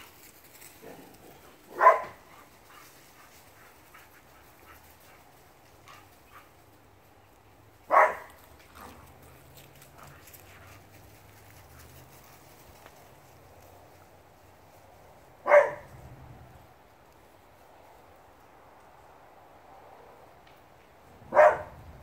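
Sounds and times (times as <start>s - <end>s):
dog barking: 1.7s - 2.2s, 7.9s - 9.0s, 15.4s - 15.9s, 21.3s - 21.8s.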